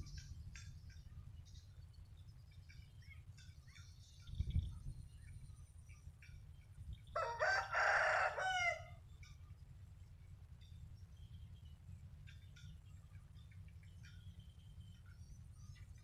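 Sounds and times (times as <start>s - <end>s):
faint bird chirps: 0.0s - 7.5s, 8.8s - 16.0s
rooster crowing: 7.2s - 9.0s.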